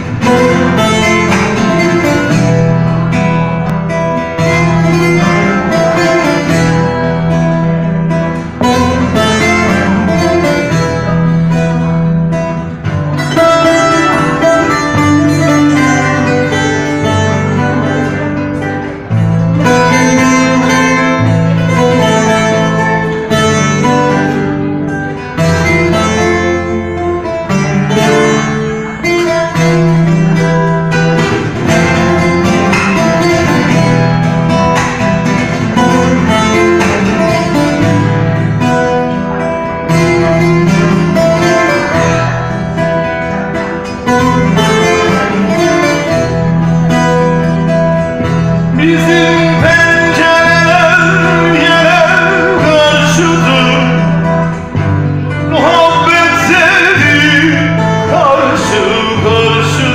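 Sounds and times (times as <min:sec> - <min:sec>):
sustained low bass notes: 0:00.0 - 0:43.0
long-necked lute melody: 0:00.0 - 0:59.9.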